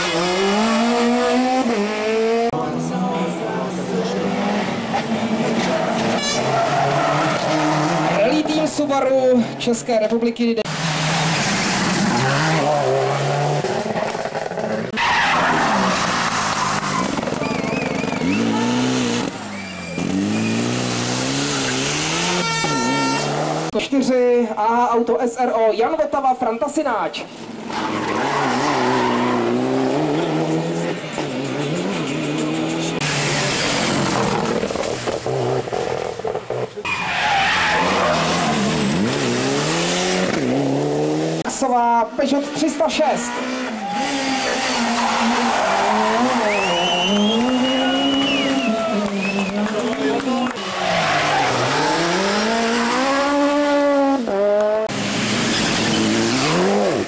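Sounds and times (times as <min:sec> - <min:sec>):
rally car engine revving: 0:00.0 - 0:08.7, 0:10.6 - 0:23.8, 0:27.4 - 0:41.6, 0:42.3 - 0:57.0
tyres squealing: 0:14.9 - 0:23.6, 0:36.5 - 0:39.2, 0:43.8 - 0:49.6.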